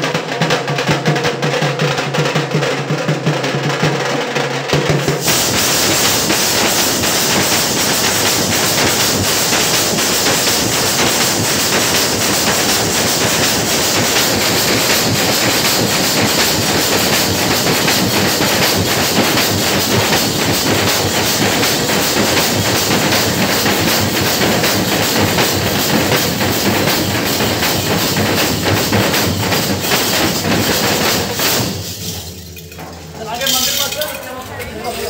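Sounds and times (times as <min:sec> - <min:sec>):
drummers beating large drums: 0:00.0 - 0:35.0.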